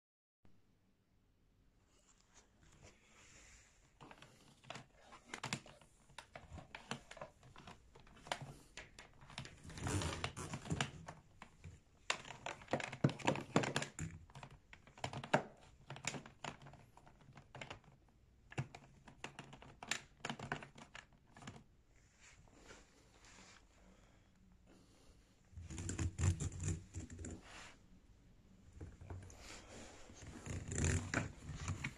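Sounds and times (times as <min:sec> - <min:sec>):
hands handling vacuum cord and hose: 0:03.9 - 0:21.7, 0:28.8 - 0:31.9.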